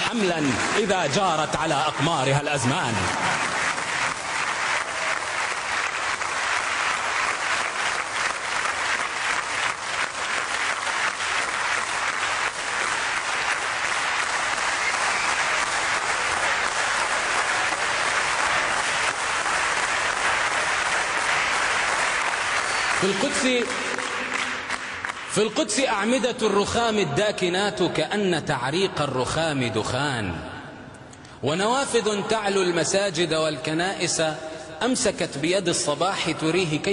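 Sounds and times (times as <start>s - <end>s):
audience applauding: 0.0s - 25.6s.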